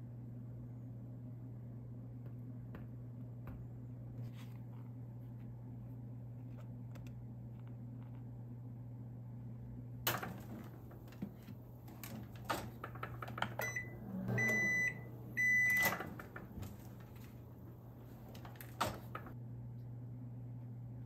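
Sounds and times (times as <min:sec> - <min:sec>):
microwave door and button clicks: 0:10.1 - 0:19.4
microwave beeps: 0:12.3 - 0:17.6.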